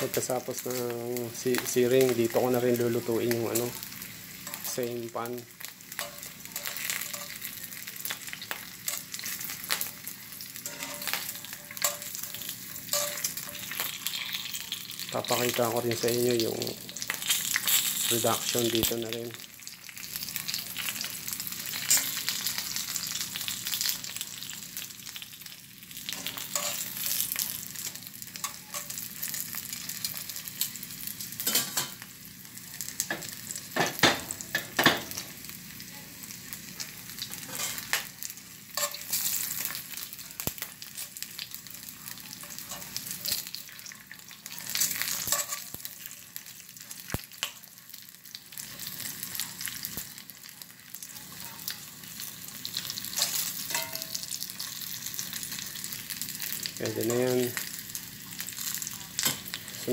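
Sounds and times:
meat sizzling in hot oil: 0.0s - 59.9s
metal tongs clicking on pan: 6.0s - 7.4s, 10.6s - 14.3s, 44.7s - 45.8s.

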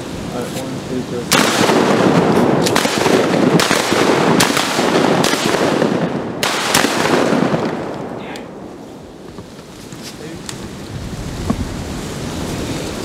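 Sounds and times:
shotgun shots: 1.3s - 8.4s.

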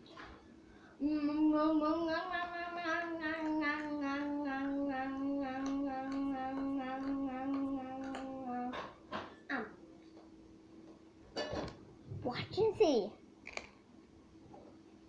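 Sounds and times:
girl humming a long note: 1.0s - 8.8s.

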